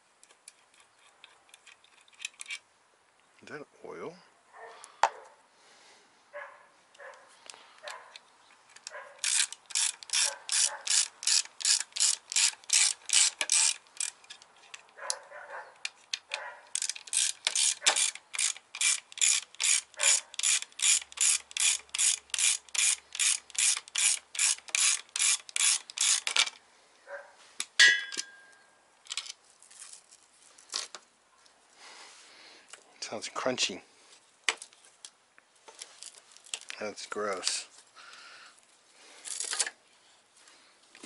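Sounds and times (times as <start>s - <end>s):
ratchet wrench clicking: 8.8s - 14.8s, 16.7s - 26.6s.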